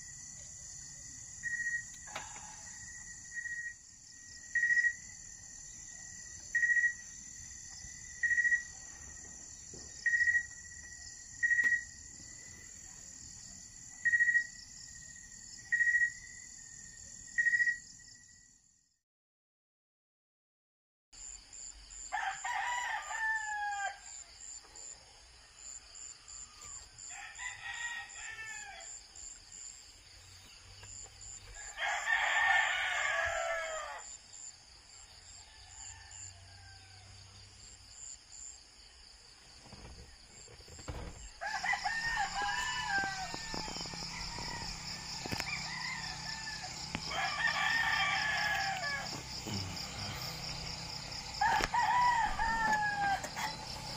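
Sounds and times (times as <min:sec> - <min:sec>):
insects chirring: 0:00.0 - 0:18.6, 0:21.2 - 0:53.9
roosters crowing: 0:22.1 - 0:24.4, 0:25.4 - 0:29.1, 0:31.4 - 0:34.2, 0:35.3 - 0:37.3, 0:40.9 - 0:53.9.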